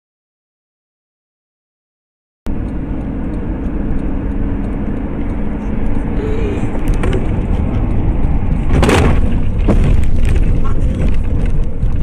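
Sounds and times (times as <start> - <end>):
car engine and tyre rumble: 2.5 - 12.0
loud impact bang: 8.6 - 10.5.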